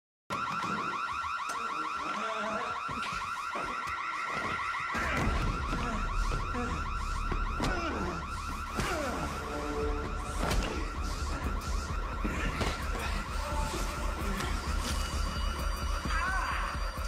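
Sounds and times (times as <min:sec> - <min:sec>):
shrill electronic alarm warbling: 0:00.3 - 0:17.0.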